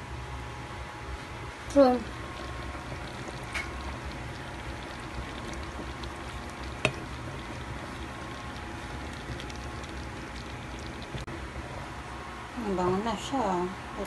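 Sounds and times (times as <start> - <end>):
sauce simmering in a pan: 2.0 - 11.3.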